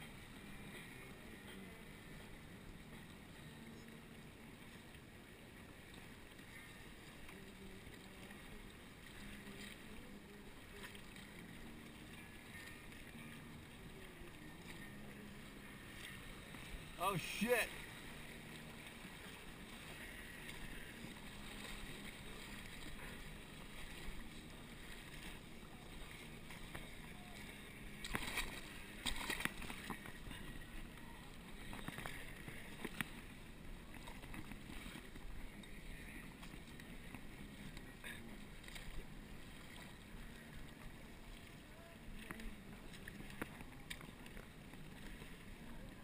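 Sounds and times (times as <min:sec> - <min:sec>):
river water rushing: 0:05.6 - 0:33.0
paddle splashes and knocks: 0:16.0 - 0:30.6.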